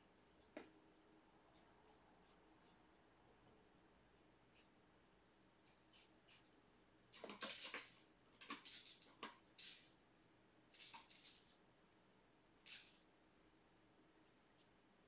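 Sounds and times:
kitten scratching and rustling: 0:07.1 - 0:09.9, 0:10.7 - 0:11.6, 0:12.7 - 0:13.1.

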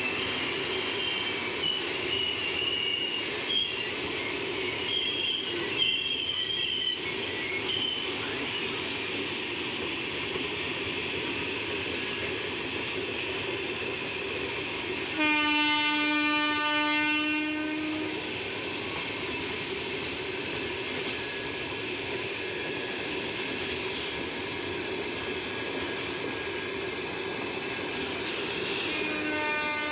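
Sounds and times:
train wheels rushing on rails: 0:00.0 - 0:29.9
locomotive horn blast: 0:15.1 - 0:18.2, 0:28.9 - 0:29.9.

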